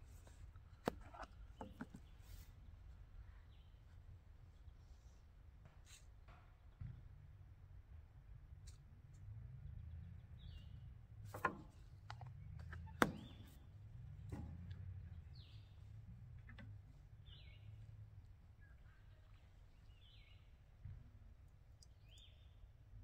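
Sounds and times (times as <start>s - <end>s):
low steady rumble: 7.0s - 23.0s
bird chirping: 9.9s - 10.9s, 12.2s - 13.8s, 17.2s - 20.6s, 21.8s - 22.7s.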